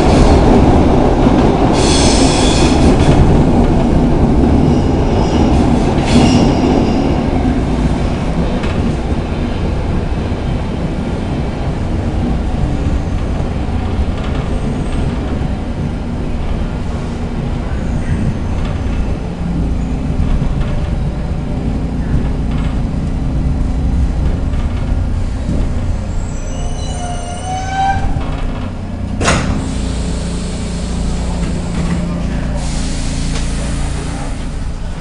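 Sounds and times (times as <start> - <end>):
train rumbling on rails: 0.0 - 35.0
hissing air burst: 1.8 - 2.8, 32.5 - 34.7.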